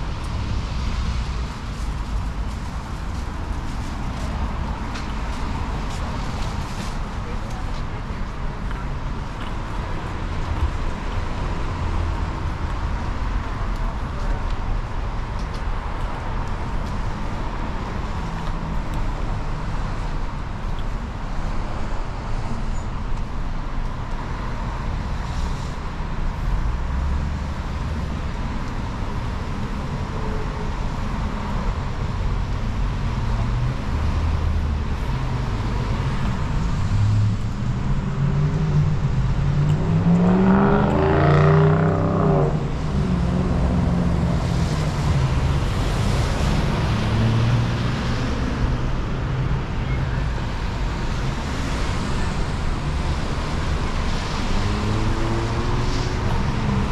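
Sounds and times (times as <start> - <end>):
traffic on wet pavement: 0.0 - 56.9
vehicle passing close by: 35.8 - 49.5.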